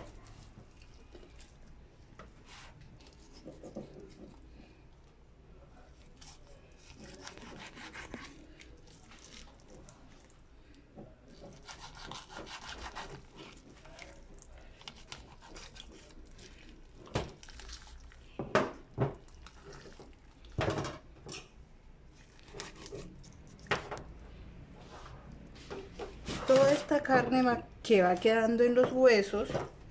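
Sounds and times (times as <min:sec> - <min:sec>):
knife scraping raw chicken: 0:02.3 - 0:04.5, 0:05.8 - 0:09.6, 0:11.3 - 0:18.0, 0:22.2 - 0:23.7.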